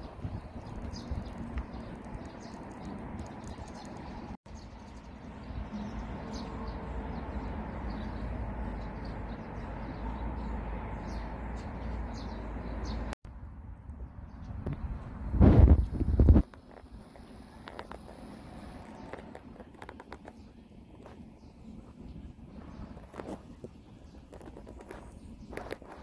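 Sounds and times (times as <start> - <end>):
wind rumble on microphone: 0.0 - 4.4, 11.0 - 26.0
small birds chirping: 0.0 - 13.2, 15.8 - 26.0.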